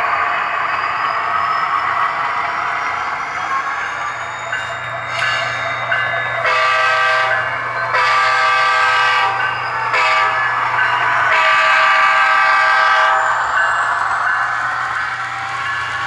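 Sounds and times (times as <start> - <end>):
diesel air horn blasts: 6.4 - 7.4, 8.0 - 10.4, 11.3 - 13.2.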